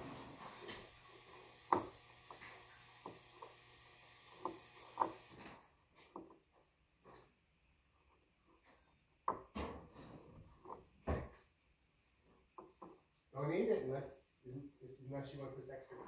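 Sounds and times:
household knocks and clicks: 0.0 - 7.2, 9.2 - 11.4.

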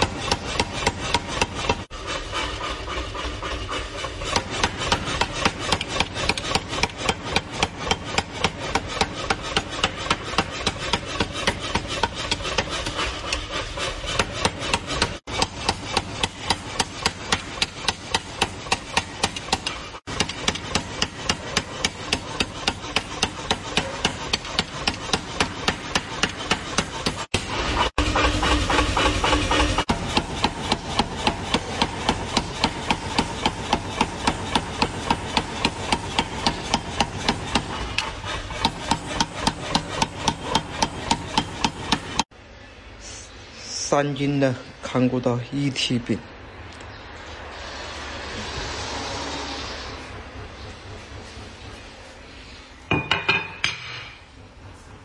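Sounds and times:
power hammer pounding hot steel: 0.0 - 42.3.

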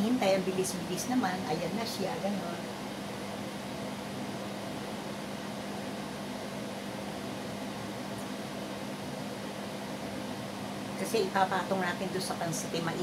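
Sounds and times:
microwave oven humming: 0.0 - 13.0.

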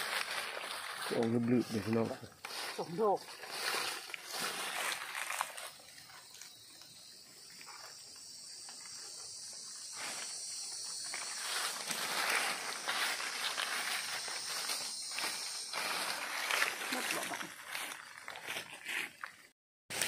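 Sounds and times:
dry leaves rustling: 0.0 - 6.4, 9.8 - 19.3
forest insects droning: 0.0 - 20.0
machete scraping in soil: 2.4 - 5.8, 11.1 - 19.2.

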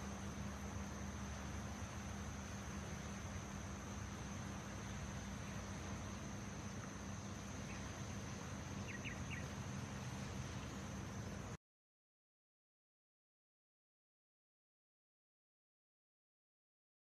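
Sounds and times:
low hum: 0.0 - 11.6
steady hiss: 0.0 - 11.6.

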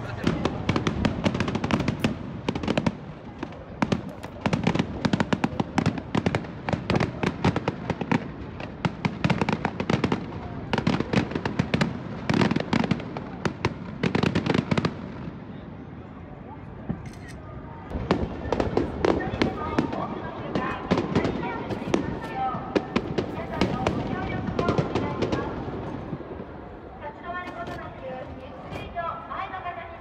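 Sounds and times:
fireworks bursting: 17.9 - 26.6.

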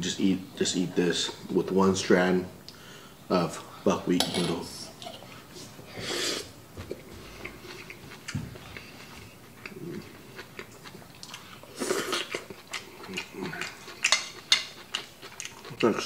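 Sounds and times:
person chewing and slurping noodles: 6.0 - 15.8.

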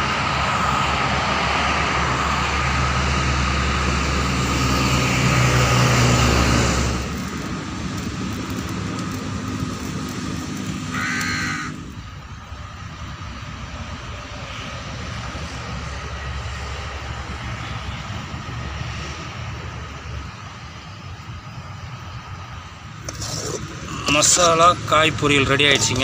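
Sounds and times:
engine running with rushing noise: 0.0 - 26.0
crow cawing: 10.9 - 11.9.

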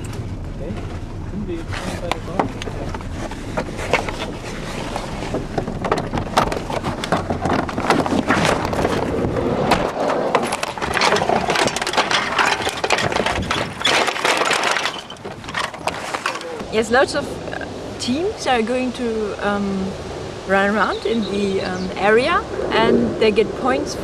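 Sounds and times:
bicycle rattling over grass: 0.0 - 16.6
clattering handling noise: 0.0 - 16.6
vehicle rumble: 0.0 - 24.0.

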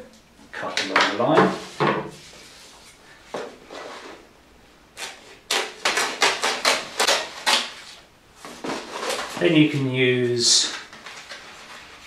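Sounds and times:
scissors snipping foil: 5.0 - 7.8.

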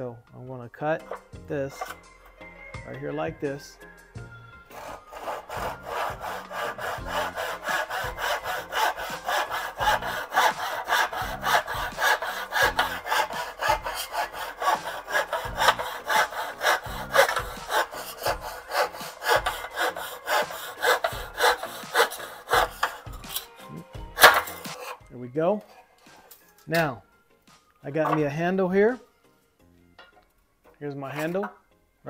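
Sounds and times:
hand saw cutting wood: 1.0 - 2.0, 4.7 - 26.9, 27.9 - 29.0, 30.9 - 31.6.

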